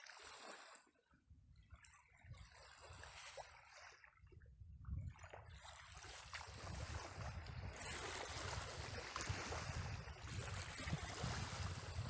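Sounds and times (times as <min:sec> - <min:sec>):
small waves lapping: 0:00.0 - 0:12.0
wind on microphone: 0:04.2 - 0:12.0.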